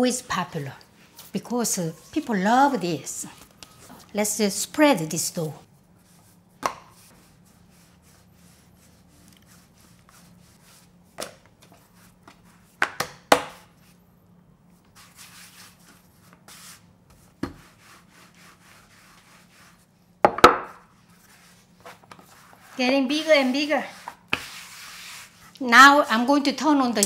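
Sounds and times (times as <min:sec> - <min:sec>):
rolling pin rolling dough: 0:14.9 - 0:25.6
knocks on wooden board: 0:20.3 - 0:20.7.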